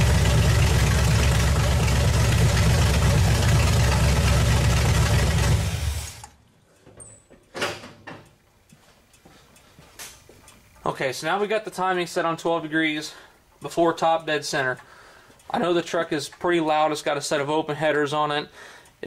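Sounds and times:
car engine idling loudly: 0.0 - 6.3.

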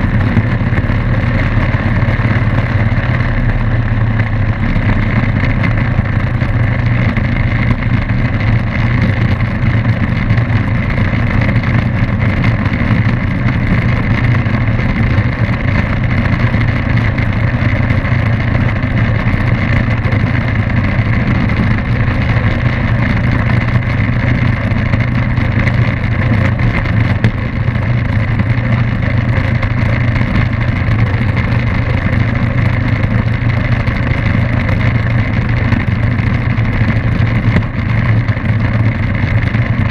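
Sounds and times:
propeller plane engine running: 0.0 - 39.9.

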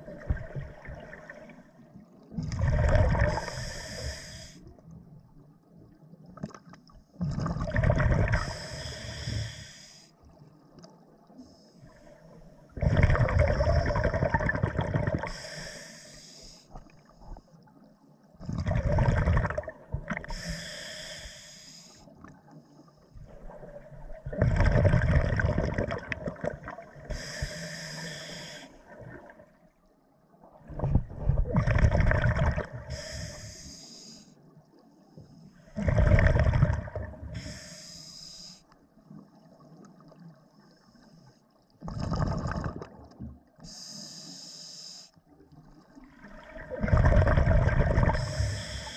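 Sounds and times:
bubbling underwater: 2.4 - 3.4, 7.2 - 8.4, 12.8 - 15.3, 18.4 - 20.2, 24.2 - 26.9, 30.6 - 32.8, 35.8 - 37.3, 41.8 - 43.4, 46.1 - 48.3
diver breathing through regulator: 3.2 - 4.6, 8.3 - 10.2, 15.2 - 16.8, 20.2 - 22.1, 27.0 - 28.9, 32.8 - 34.4, 37.3 - 38.7, 43.6 - 45.2, 48.1 - 48.9.

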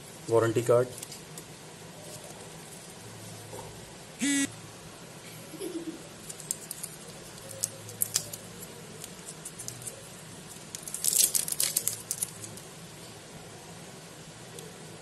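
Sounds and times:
plastic film crinkling: 6.2 - 12.7.

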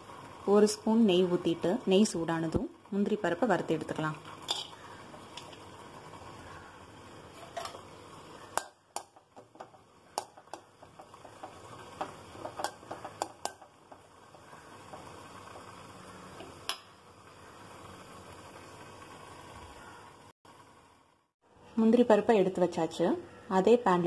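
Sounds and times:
faint sizzle: 0.0 - 24.0
metal spoon scraping a pan: 4.4 - 5.6, 7.3 - 7.9.

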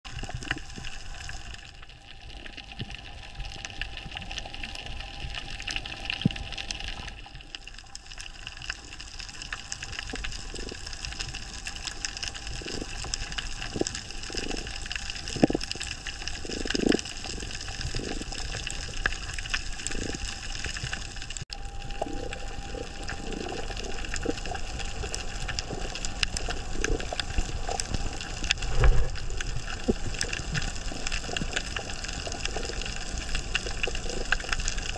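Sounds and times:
muffled underwater hiss: 0.1 - 34.9
small clicks and crackles: 0.1 - 34.9.

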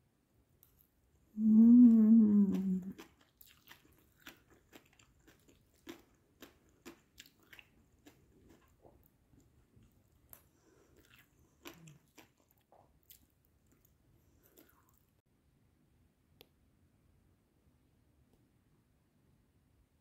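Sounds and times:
person humming: 1.4 - 3.0
chewing crunchy food: 2.3 - 15.2.

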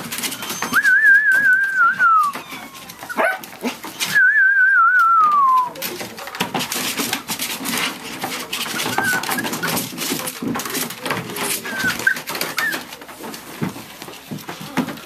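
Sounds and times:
puppies scuffling and scrabbling: 0.0 - 15.0
puppy whines: 0.1 - 4.4, 8.6 - 10.0, 11.5 - 13.0.

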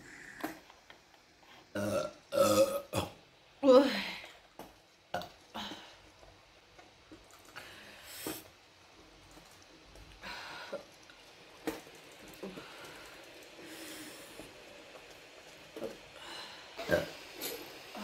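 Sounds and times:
woman breathing: 7.5 - 8.5, 10.2 - 11.0, 12.4 - 14.7, 16.1 - 18.0.

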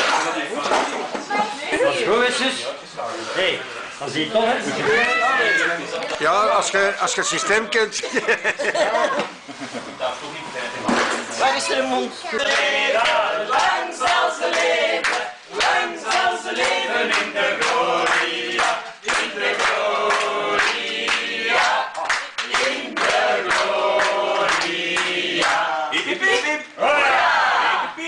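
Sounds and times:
group singing birthday song: 5.9 - 28.0
people clapping: 12.4 - 26.7.

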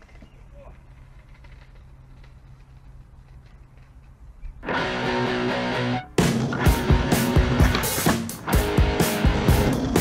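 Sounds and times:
rock music with guitar: 4.6 - 10.0.

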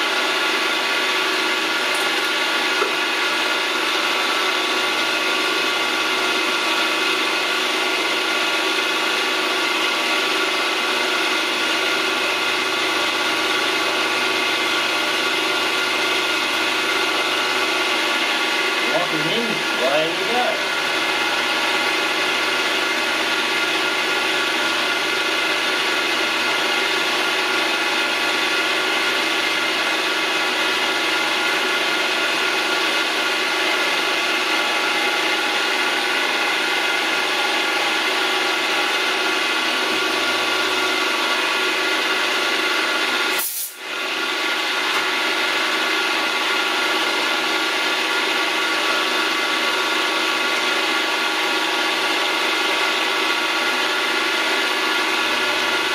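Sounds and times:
milling machine whine and cutting: 0.0 - 55.9.

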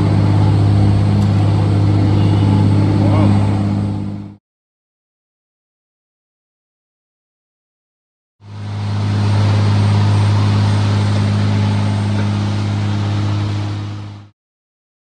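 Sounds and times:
boat motor running: 0.0 - 4.4, 8.4 - 14.3.

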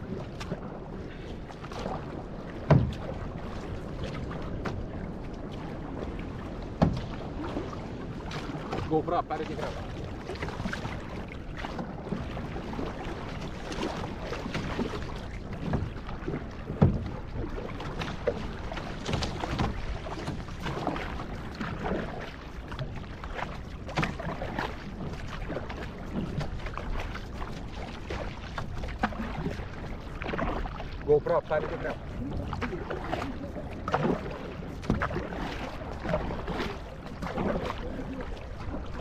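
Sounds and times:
paddle strokes: 0.0 - 39.0
water splashing: 0.0 - 39.0
knocks on canoe: 2.6 - 3.2, 6.8 - 7.2, 16.7 - 17.2.

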